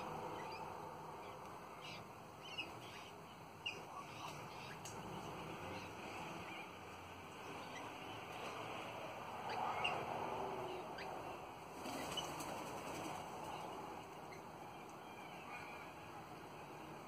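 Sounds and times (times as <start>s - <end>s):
parrots chattering and chirping: 0.3s - 6.8s.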